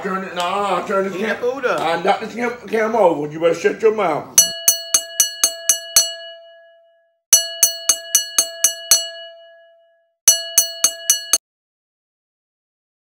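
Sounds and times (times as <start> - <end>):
boxing ring bell strikes: 4.4 - 11.4.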